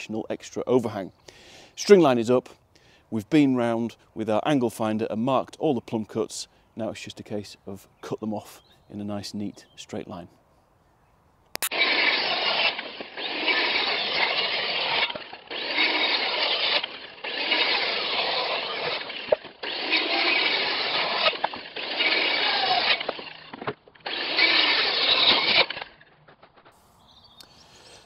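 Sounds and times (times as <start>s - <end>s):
circular saw cutting timber: 11.6s - 26.7s.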